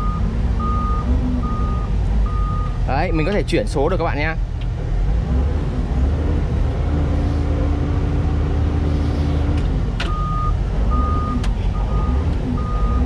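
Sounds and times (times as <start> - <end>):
electronic warning beep: 0.0 - 2.7, 10.1 - 13.0
diesel engine running: 0.0 - 13.0.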